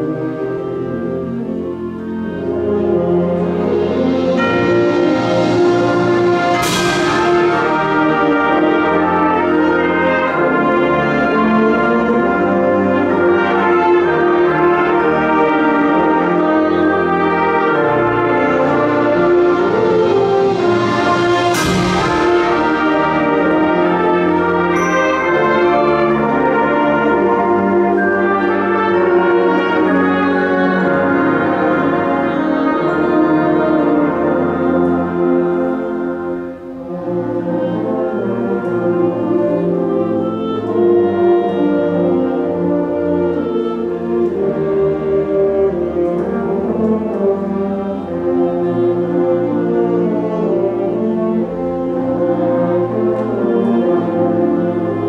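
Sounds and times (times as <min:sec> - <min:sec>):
concert band playing chords: 0:00.0 - 0:55.0
cymbal crash: 0:04.1 - 0:08.8, 0:20.0 - 0:23.8.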